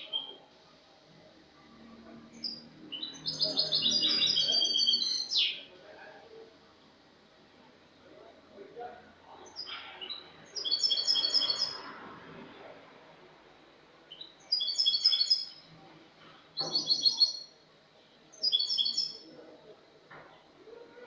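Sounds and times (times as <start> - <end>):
goldfinch singing: 2.4 - 5.6, 10.6 - 11.8, 14.1 - 15.6, 18.4 - 19.2.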